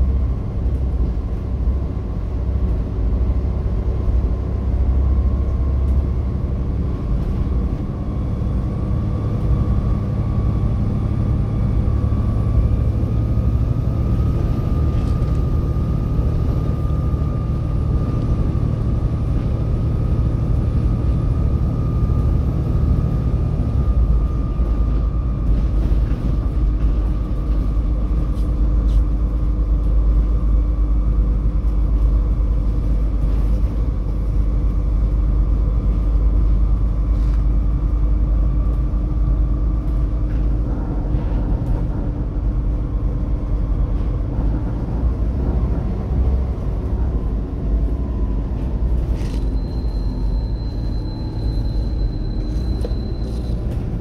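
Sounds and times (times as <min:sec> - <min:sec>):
bus diesel engine rumbling: 0:00.0 - 0:54.0
engine whine: 0:00.0 - 0:54.0.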